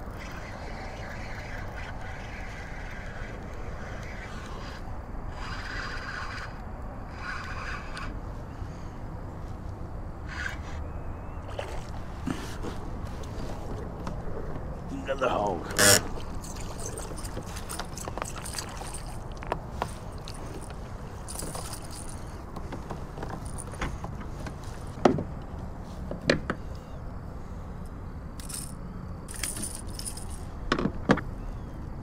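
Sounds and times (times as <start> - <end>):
steady background noise: 0.0 - 32.0
fishing gear knocks and rattles: 15.8 - 24.3, 28.4 - 30.4.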